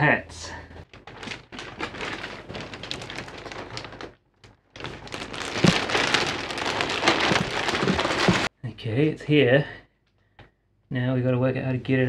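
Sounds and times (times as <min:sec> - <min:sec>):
plastic bag crinkling: 0:00.8 - 0:08.5
low thuds: 0:04.8 - 0:08.5.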